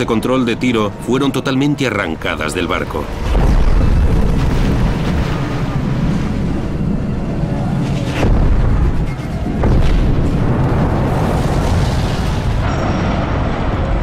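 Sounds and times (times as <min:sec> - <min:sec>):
deep rumbling booms: 0:03.0 - 0:14.0.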